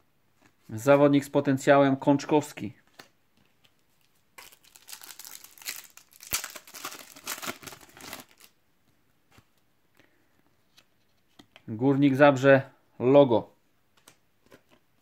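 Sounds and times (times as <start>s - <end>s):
foil packet crinkling: 4.4s - 8.6s.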